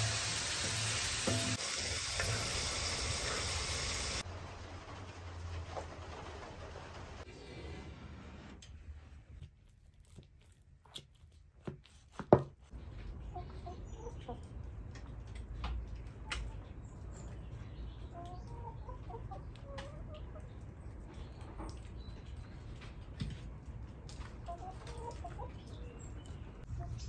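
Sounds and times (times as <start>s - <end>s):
hens clucking: 13.0s - 16.8s, 18.0s - 21.7s, 24.0s - 26.0s.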